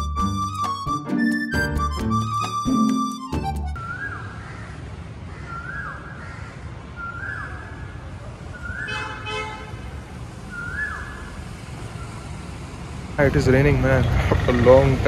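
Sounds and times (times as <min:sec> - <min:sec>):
background music: 0:00.0 - 0:03.8.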